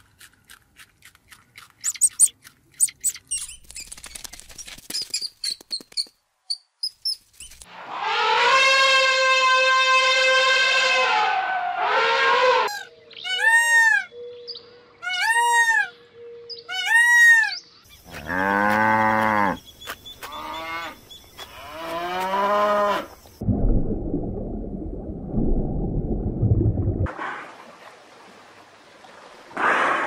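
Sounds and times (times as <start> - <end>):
low rumbling noise: 23.4 - 27.1.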